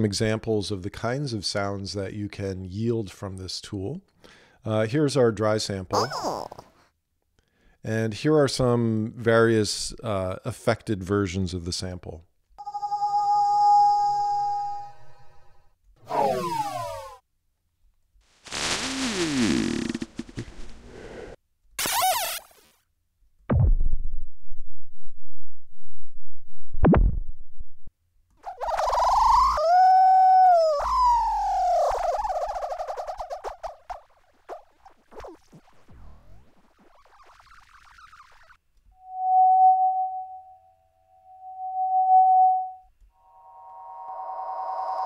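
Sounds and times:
steady whistle-like tone: 12.6 - 17.1, 39.0 - 45.0
deep booming hits: 23.5 - 24.5
crackly warbling tail: 31.6 - 38.6.

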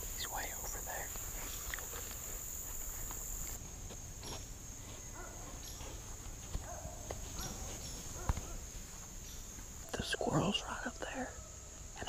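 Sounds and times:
insect chorus buzzing: 0.0 - 12.0.

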